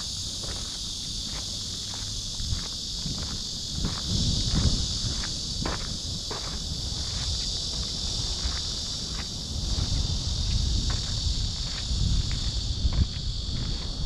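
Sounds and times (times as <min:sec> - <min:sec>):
faint footsteps walking: 0:00.0 - 0:14.0
high-pitched insect chorus: 0:00.0 - 0:14.0.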